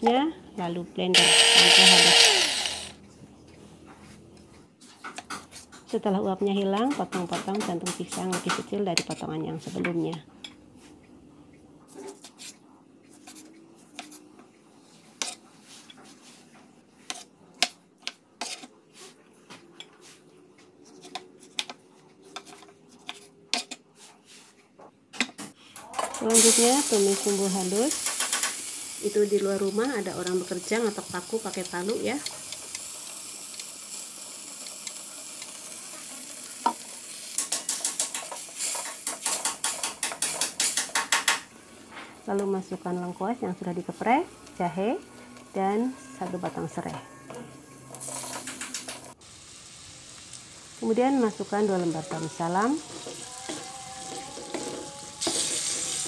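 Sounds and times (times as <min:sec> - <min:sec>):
wooden spatula scraping wok: 0:11.9 - 0:17.3, 0:18.4 - 0:19.2, 0:20.8 - 0:24.6, 0:51.2 - 0:56.0
paste sizzling in oil: 0:26.3 - 0:41.3, 0:48.0 - 0:56.0.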